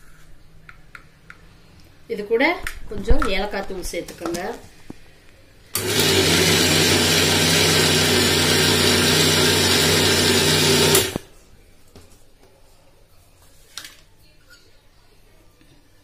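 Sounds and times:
electric mixer grinder running: 5.8 - 11.3.

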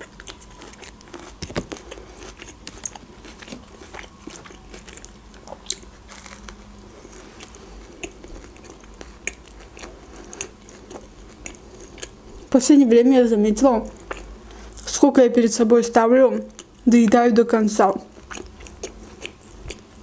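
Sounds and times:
biting and chewing sandwich: 0.0 - 12.5, 18.1 - 20.0
sharp crunch: 5.7 - 6.6.

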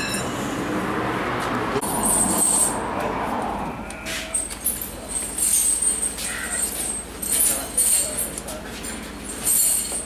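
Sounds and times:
steel chain jangling and clinking: 1.8 - 2.8, 4.2 - 10.0.

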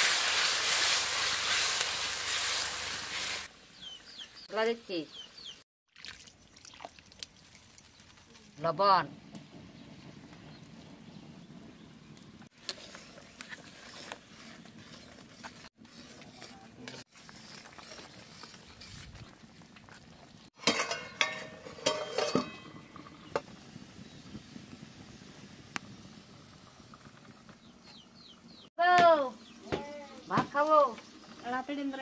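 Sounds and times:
metal ladle clinking against pan: 20.6 - 22.9.

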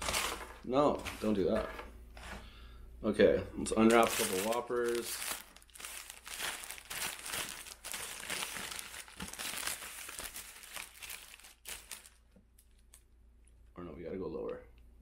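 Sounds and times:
paper wrappers crinkling: 0.0 - 1.4, 3.8 - 13.0.

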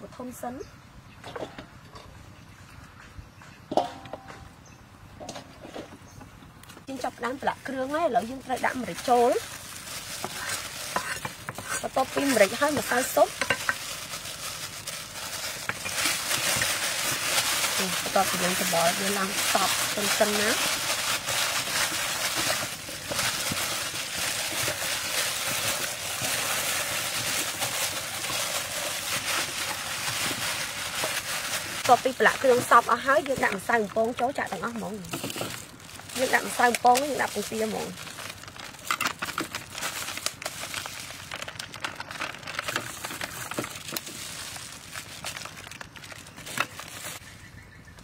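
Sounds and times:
plastic gloves crinkling: 6.8 - 47.4
raw chicken skin squishing: 8.9 - 47.2.

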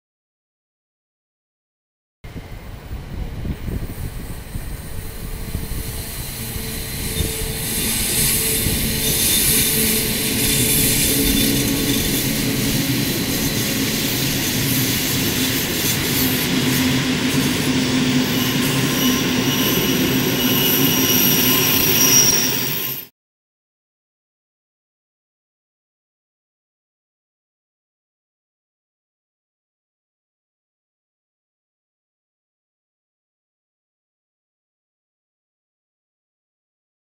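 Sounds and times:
train wheels on rails: 2.4 - 23.1.

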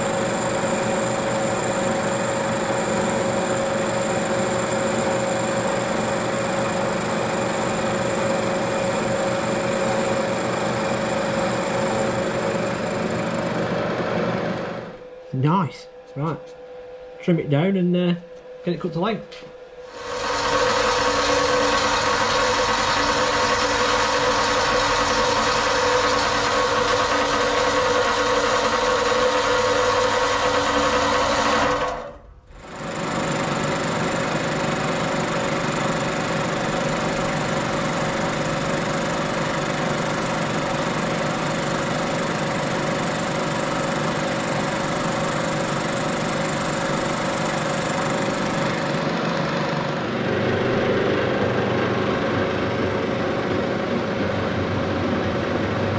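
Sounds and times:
bandsaw cutting steel: 19.9 - 32.1
milling machine cutting steel: 20.0 - 32.0.

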